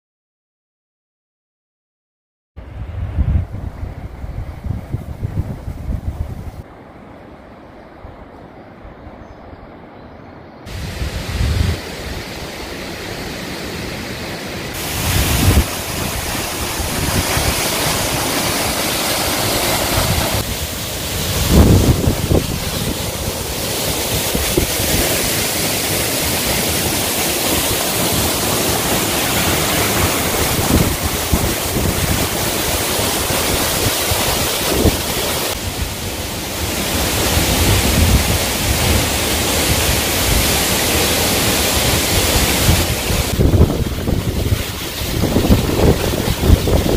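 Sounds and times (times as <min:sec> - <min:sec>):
wind buffeting microphone: 0:02.6 - 0:06.6, 0:10.7 - 0:12.5, 0:14.7 - 0:25.6, 0:27.8 - 0:36.2, 0:36.9 - 0:40.7, 0:41.8 - 0:46.9
waterfall roaring: 0:10.7 - 0:46.9.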